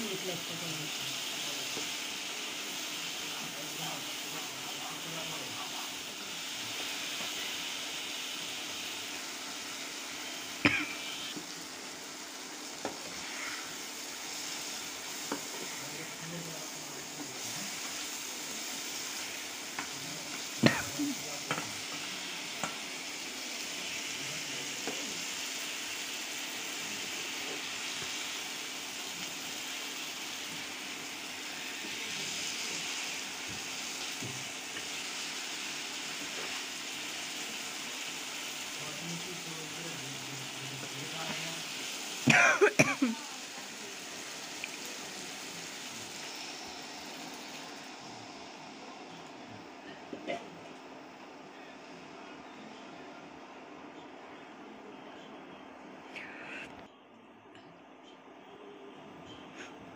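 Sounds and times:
onion sizzling in oil: 0.0 - 52.7
spatula stirring in pan: 5.6 - 24.2, 24.8 - 38.8.

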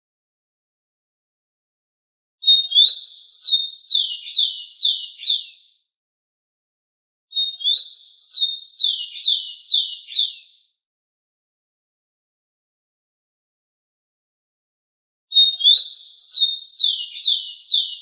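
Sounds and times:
sparrow singing whistled song: 2.4 - 5.9, 7.3 - 10.8, 15.3 - 18.0.

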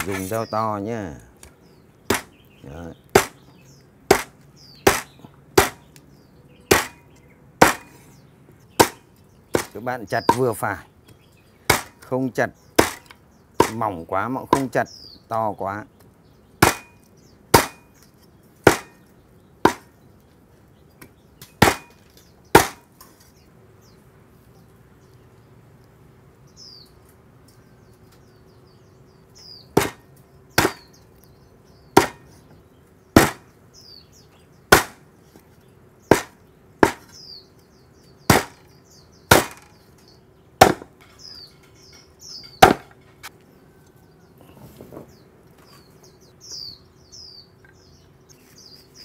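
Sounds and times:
birds chirping faintly: 0.0 - 49.0
cleaver chopping meat on wood: 2.1 - 2.4, 3.1 - 3.4, 4.1 - 5.9, 6.7 - 7.0, 7.6 - 8.0, 8.8 - 10.5, 11.7 - 12.1, 12.8 - 13.8, 14.5 - 14.8, 16.6 - 17.9, 18.6 - 19.0, 19.6 - 19.9, 21.0 - 22.9, 29.7 - 30.0, 30.6 - 30.9, 31.9 - 32.3, 33.2 - 33.4, 34.7 - 35.0, 36.1 - 37.1, 38.3 - 38.7, 39.3 - 39.7, 40.6 - 41.0, 42.6 - 42.9.

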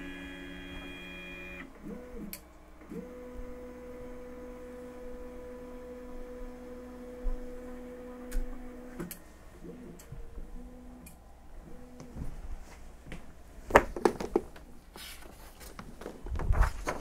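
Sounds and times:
printer stepper motors whining: 0.0 - 12.2.

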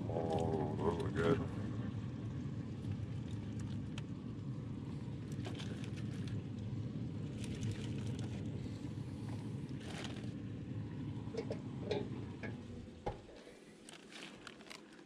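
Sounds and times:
foil crinkling: 5.4 - 6.4, 9.7 - 10.4, 13.3 - 15.0
clicks and knocks on metal grates: 11.4 - 13.3.

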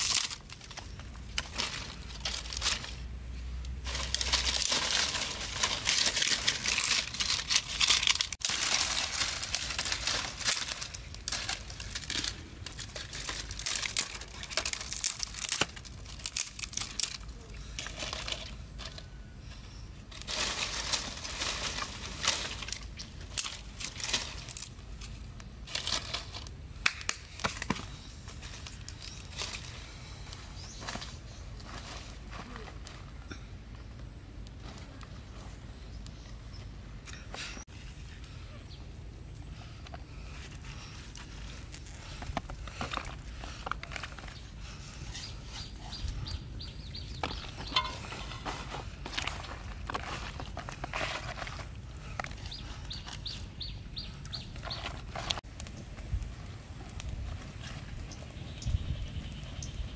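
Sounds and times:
dry leaves rustling and crackling: 0.0 - 33.4, 39.2 - 59.9
fire snapping: 3.6 - 17.4, 20.6 - 30.5, 51.6 - 59.9.

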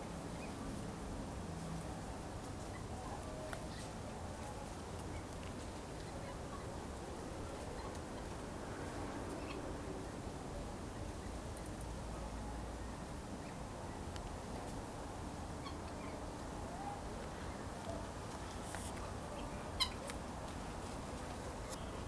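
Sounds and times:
steady background noise: 0.0 - 22.0
guinea fowl chirps and calls: 0.3 - 0.6, 2.6 - 6.8, 7.5 - 8.3, 9.3 - 9.6, 15.6 - 16.2, 19.3 - 20.2.

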